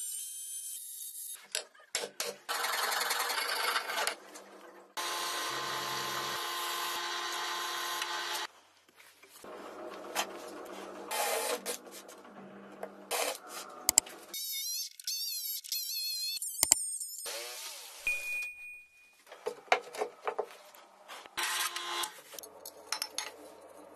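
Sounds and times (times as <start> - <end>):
cordless drill boring into wood: 5.0 - 8.5
power tool motor running: 5.0 - 8.5.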